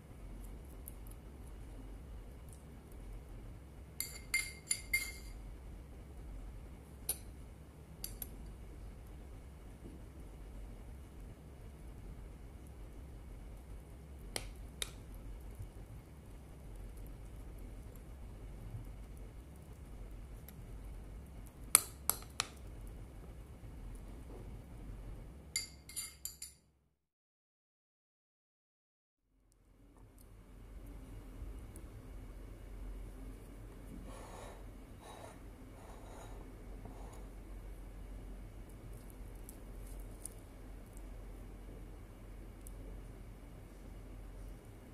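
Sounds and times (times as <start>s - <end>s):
metal spoon clinking against glass: 4.0s - 5.4s, 25.6s - 26.6s.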